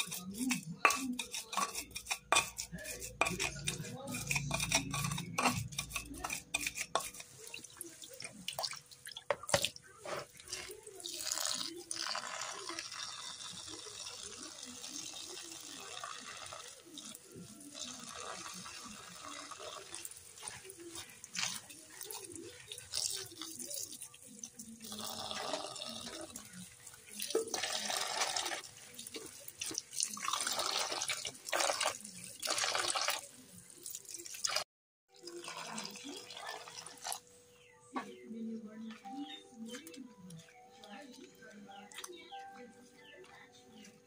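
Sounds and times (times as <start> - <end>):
running water splashing: 6.0 - 37.2.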